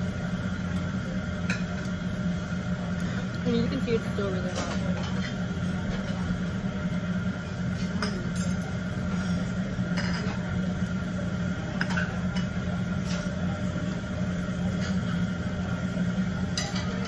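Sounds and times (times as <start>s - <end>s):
steady low hum: 0.0s - 17.0s
utensils clinking against dishes: 7.7s - 10.5s, 11.7s - 13.4s, 16.4s - 17.0s.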